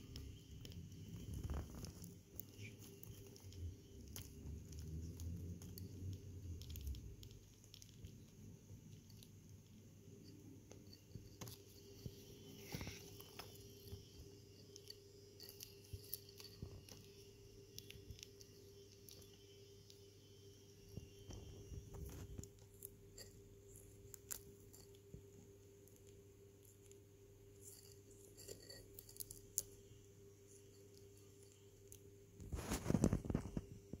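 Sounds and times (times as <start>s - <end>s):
tortoise chewing leaves: 0.0s - 8.2s.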